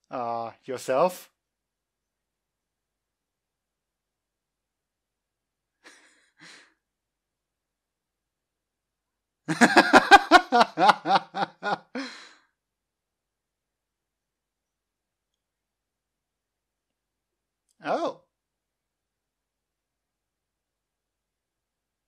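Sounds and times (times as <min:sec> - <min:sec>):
faint breaths: 0:05.8 - 0:06.8, 0:11.9 - 0:12.6
man laughing: 0:05.8 - 0:06.8, 0:09.5 - 0:12.4.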